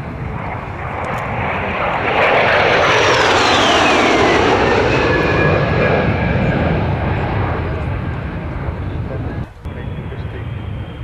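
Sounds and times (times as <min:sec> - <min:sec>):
high falling jet whine: 0:00.0 - 0:11.0
jets flying past: 0:00.0 - 0:11.0.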